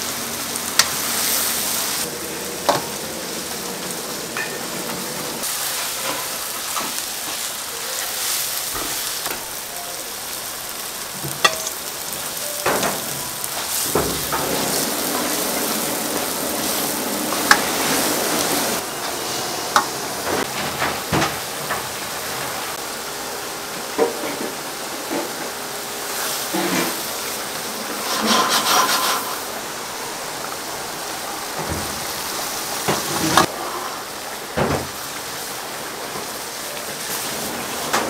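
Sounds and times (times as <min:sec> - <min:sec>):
steady kitchen hiss: 0:00.0 - 0:38.0
scraping on wood: 0:28.0 - 0:29.4.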